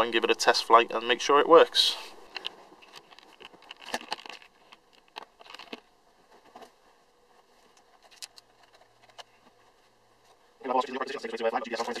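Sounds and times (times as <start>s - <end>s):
handling clicks and knocks: 2.3s - 6.7s.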